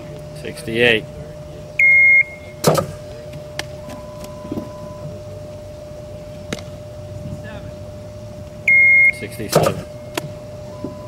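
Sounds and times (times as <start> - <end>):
loud electronic beep: 1.8 - 2.6, 8.6 - 11.0
sharp smack: 2.6 - 3.0, 9.5 - 10.3.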